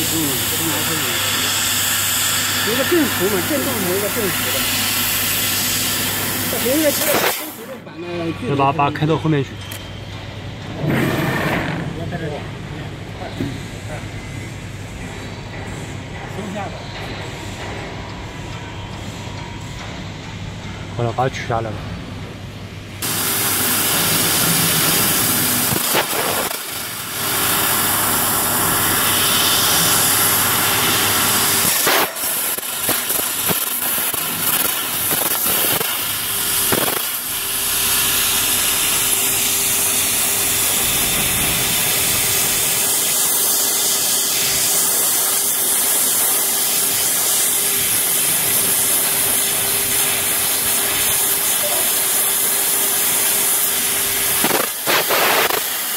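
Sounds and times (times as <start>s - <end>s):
laser cutter gas jet hissing: 0.0s - 9.5s, 23.0s - 55.9s
machine hum: 21.8s - 55.9s.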